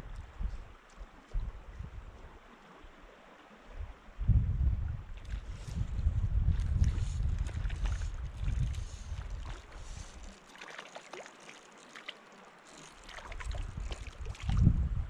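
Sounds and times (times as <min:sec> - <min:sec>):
wind buffeting microphone: 0:00.0 - 0:02.4, 0:03.7 - 0:10.4, 0:13.3 - 0:15.0
small water splashes: 0:05.1 - 0:14.8.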